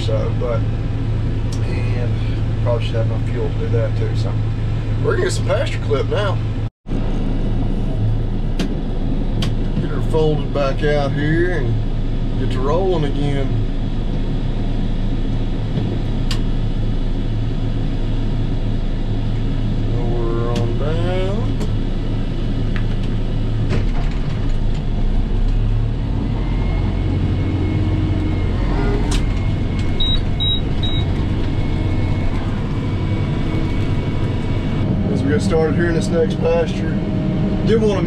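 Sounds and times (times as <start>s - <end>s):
tractor engine running under load: 21.6s - 36.6s
short high beeps: 30.0s - 31.1s.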